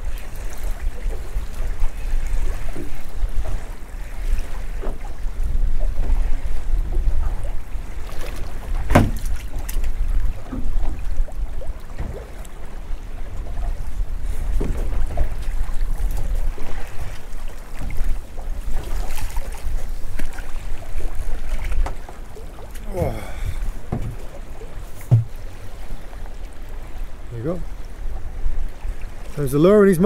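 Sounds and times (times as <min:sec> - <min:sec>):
wind buffeting microphone: 0:00.0 - 0:29.3
water slapping a hull: 0:00.0 - 0:30.0
sharp knocks: 0:08.9 - 0:09.3, 0:23.9 - 0:24.3, 0:25.0 - 0:25.4.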